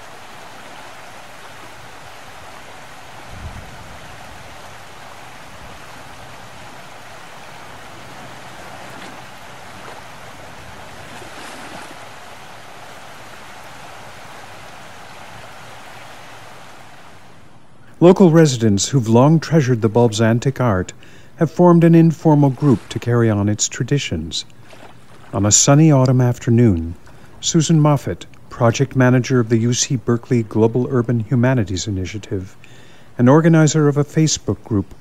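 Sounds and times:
outdoor noise: 0.0 - 18.2.

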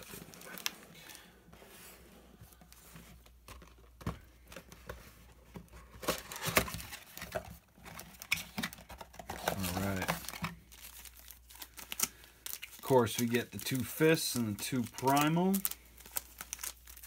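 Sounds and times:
cardboard rustling: 0.0 - 13.9.

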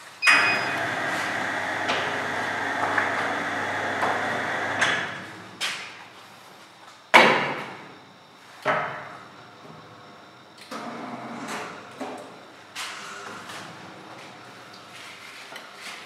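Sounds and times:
glue binding machine humming: 0.2 - 5.6.

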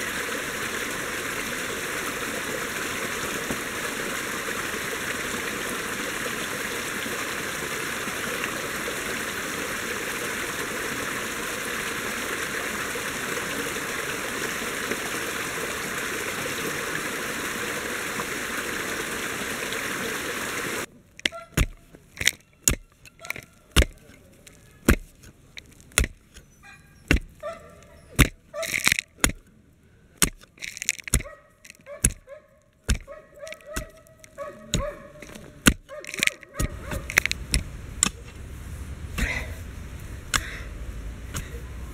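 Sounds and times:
stream and waterfall rushing: 0.0 - 20.9
knocks and clicks in soil: 21.0 - 29.6, 30.2 - 38.4, 40.3 - 40.6, 41.3 - 41.6.

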